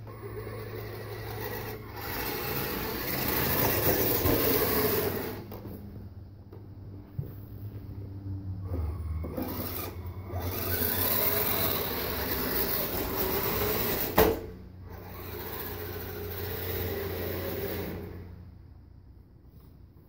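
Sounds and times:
toy vehicle electric drive whirring: 0:00.0 - 0:05.7, 0:08.6 - 0:18.4.

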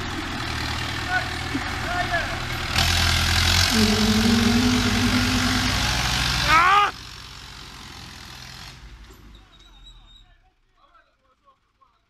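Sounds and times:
steady whine: 0:03.7 - 0:06.5.

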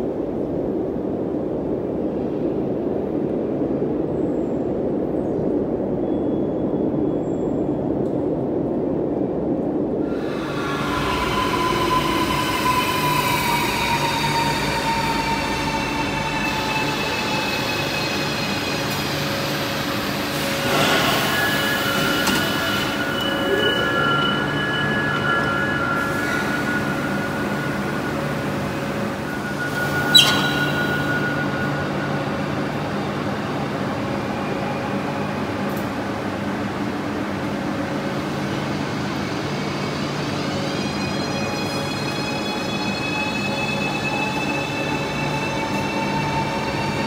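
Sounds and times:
electric train braking: 0:10.1 - 0:33.0.

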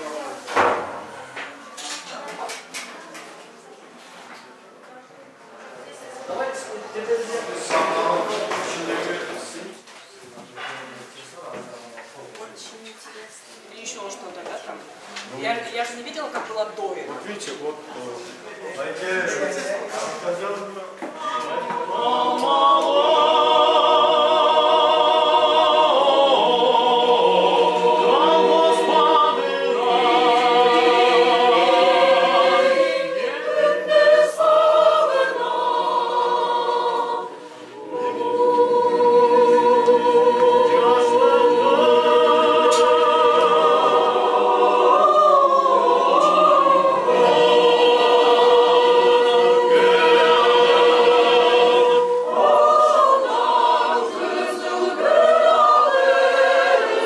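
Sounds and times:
mixed choir singing: 0:05.9 - 0:09.8, 0:21.0 - 0:57.0.

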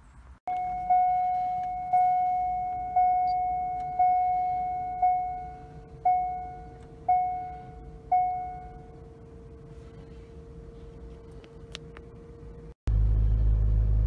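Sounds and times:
car dashboard warning chime: 0:00.5 - 0:09.6
faint steady whine: 0:00.5 - 0:12.8.

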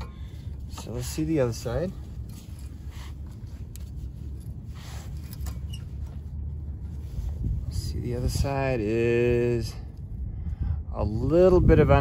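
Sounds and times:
brake pad scraping and clicking: 0:00.0 - 0:07.6
low rumble: 0:00.0 - 0:12.0.

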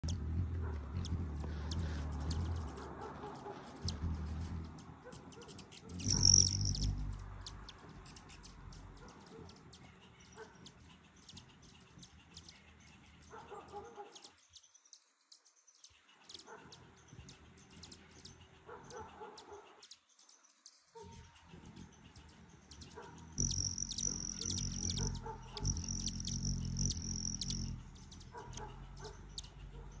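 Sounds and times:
hummingbird wing trill: 0:00.0 - 0:02.8, 0:03.4 - 0:09.8, 0:10.6 - 0:13.3, 0:21.1 - 0:30.0.

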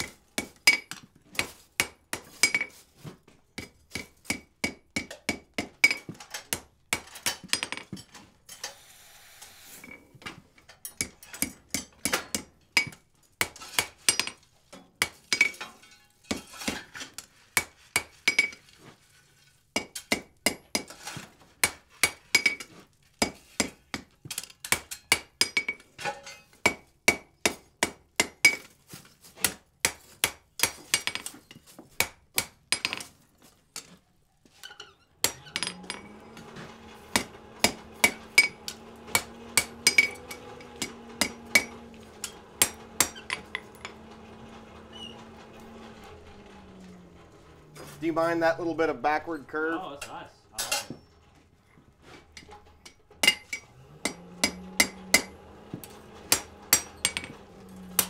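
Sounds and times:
hammer striking chisel on hot steel: 0:00.0 - 0:02.7, 0:03.6 - 0:07.7, 0:10.8 - 0:18.6, 0:19.8 - 0:28.7, 0:29.4 - 0:33.1, 0:34.6 - 0:44.2, 0:52.4 - 0:58.0
anvil ringing: 0:37.1 - 0:44.0, 0:53.2 - 0:55.4.

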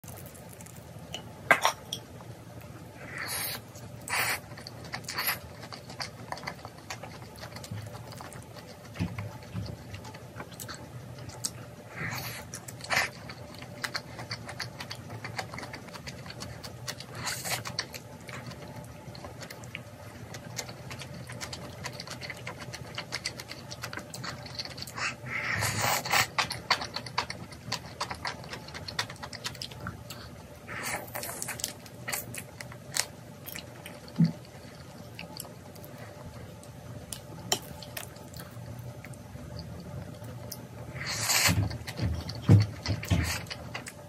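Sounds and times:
wet chewing: 0:03.0 - 0:36.2.

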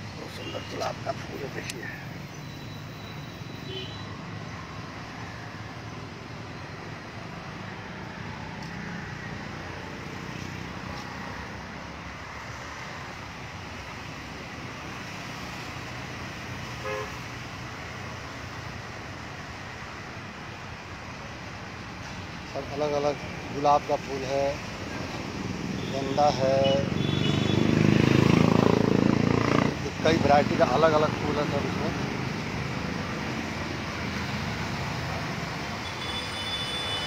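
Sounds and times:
road traffic hum: 0:00.0 - 0:37.0
car horn toot: 0:03.5 - 0:04.1, 0:16.8 - 0:17.2, 0:26.6 - 0:27.6, 0:35.8 - 0:37.0.

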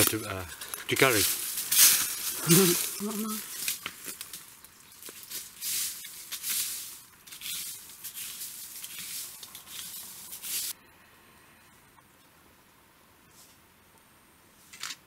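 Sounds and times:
dry brush rustling: 0:00.0 - 0:10.8.

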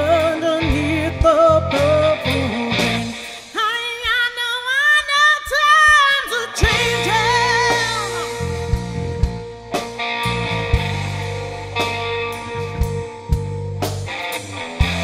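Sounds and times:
bass guitar: 0:00.0 - 0:03.6, 0:06.6 - 0:15.0
woman singing: 0:00.0 - 0:08.5
live rock band: 0:00.0 - 0:15.0.

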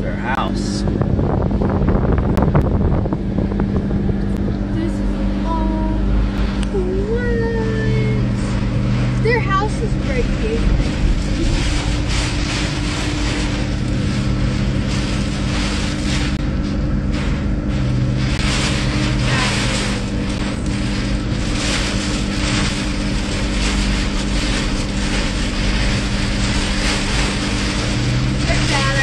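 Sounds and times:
vehicle engine running: 0:00.0 - 0:29.0
wind noise: 0:00.0 - 0:29.0
rain: 0:17.8 - 0:29.0.

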